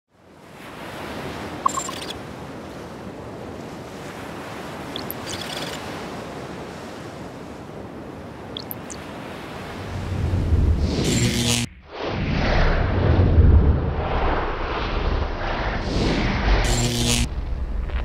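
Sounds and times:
waves and wake rushing: 0.1 - 11.7
electronic blips and glides: 1.6 - 2.1, 5.0 - 5.7, 8.6 - 9.0, 10.7 - 11.9, 16.5 - 18.0
low rumble: 9.9 - 18.0.

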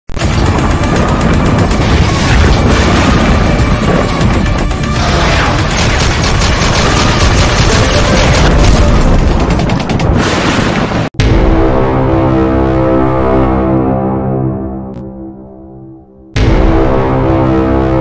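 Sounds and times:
dramatic intro music: 0.2 - 10.2, 11.2 - 18.0
rapid gunfire bursts: 0.2 - 10.6
heavy booms: 0.2 - 12.4
deep rumble: 0.2 - 15.8.

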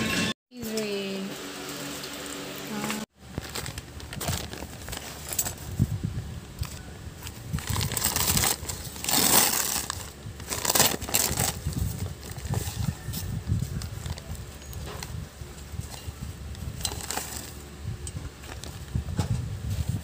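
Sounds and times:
paper bag rustling: 2.8 - 6.0, 6.6 - 17.7, 18.3 - 20.0
plastic wrapping crinkling: 3.1 - 5.9, 6.6 - 15.2, 15.8 - 17.6.

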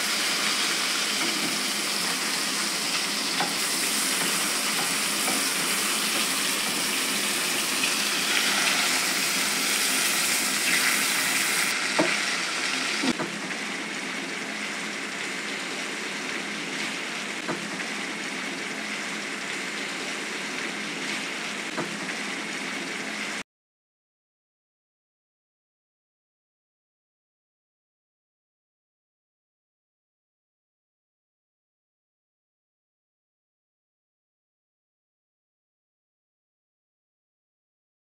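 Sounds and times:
fish frying in oil: 0.0 - 23.4.

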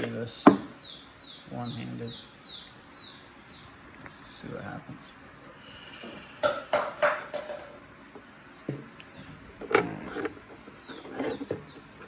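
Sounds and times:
rubbing and knocking of air filter: 9.5 - 12.0.

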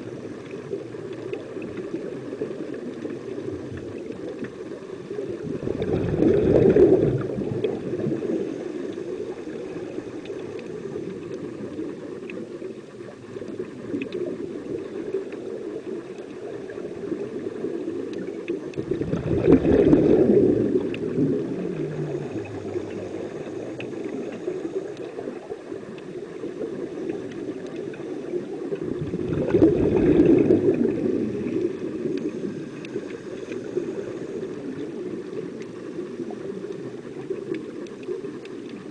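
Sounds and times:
scuba exhaust bubbles: 0.0 - 38.9
steady underwater hiss: 0.0 - 38.9.

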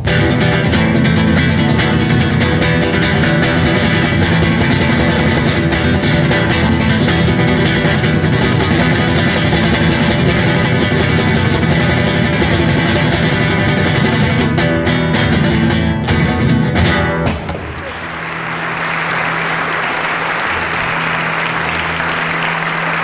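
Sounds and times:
acoustic guitar strumming: 0.0 - 23.0
audience applauding: 17.4 - 23.0.

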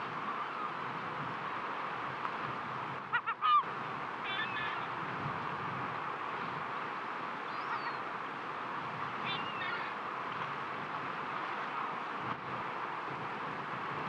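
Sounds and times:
waves on rocky shore: 0.0 - 14.0
bird calling: 3.1 - 4.9, 7.5 - 8.1, 9.2 - 10.0.

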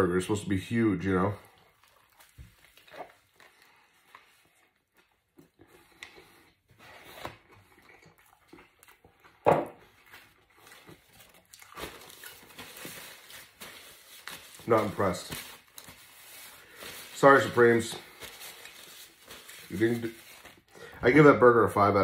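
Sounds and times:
person chewing food: 1.4 - 13.9.

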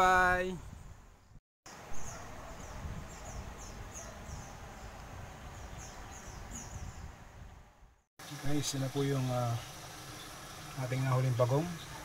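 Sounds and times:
bird chirping: 0.6 - 7.1.

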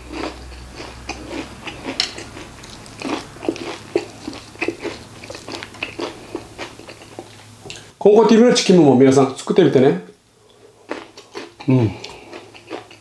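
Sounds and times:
chewing crispy fried chicken: 0.0 - 7.8, 10.5 - 13.0.

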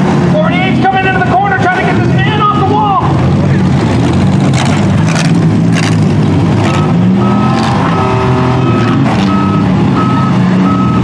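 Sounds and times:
car engines revving: 0.0 - 11.0
reversing alarm beeping: 6.6 - 11.0.

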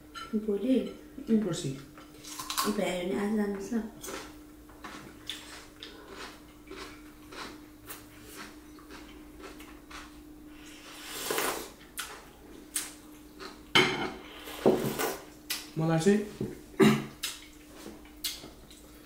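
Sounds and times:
faint steady hum: 0.0 - 19.0
wet chewing clicks: 4.0 - 10.1, 17.2 - 18.9
slurping soup: 10.6 - 11.8.

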